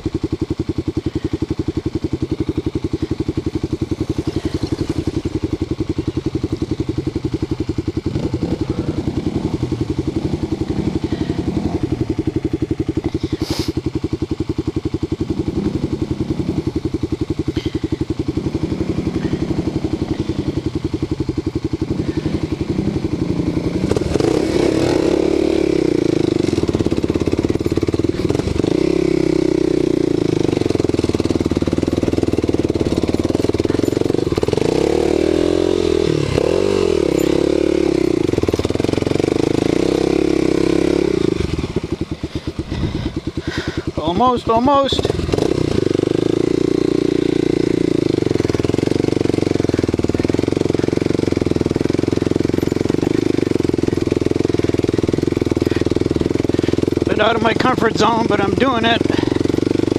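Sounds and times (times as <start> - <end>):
motorcycle engine idling and revving: 0.0 - 59.9.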